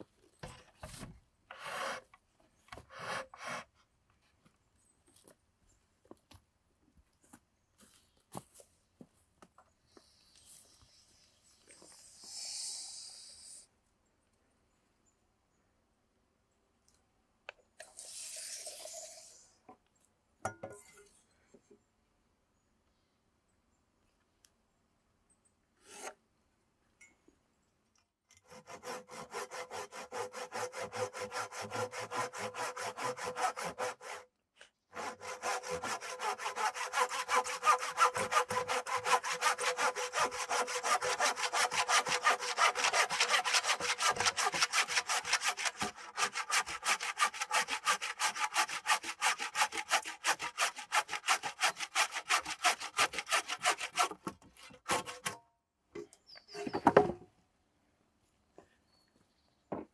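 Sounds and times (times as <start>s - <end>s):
handsaw cutting wood: 1.5s - 2.1s, 2.9s - 3.7s, 25.8s - 26.1s, 28.5s - 34.2s, 35.0s - 55.4s.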